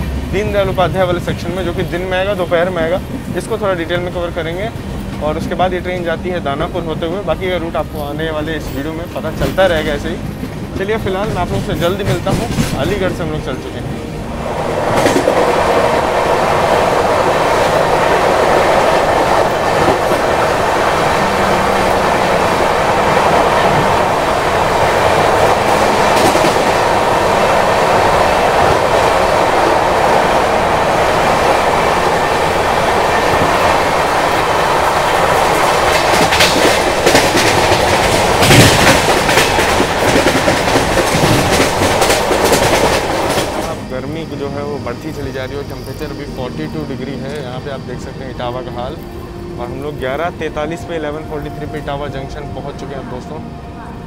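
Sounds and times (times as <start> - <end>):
rhythmic clickety-clack: 0.0 - 13.8, 14.8 - 50.3
train wheels rumbling on rails: 0.0 - 54.0.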